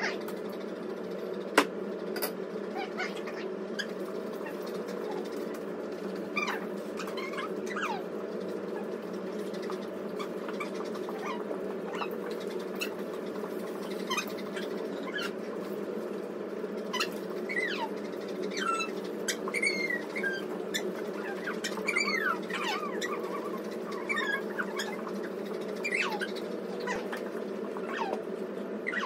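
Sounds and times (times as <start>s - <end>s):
dog whining: 2.7s - 5.4s, 6.4s - 8.1s, 10.2s - 12.2s, 16.9s - 29.0s.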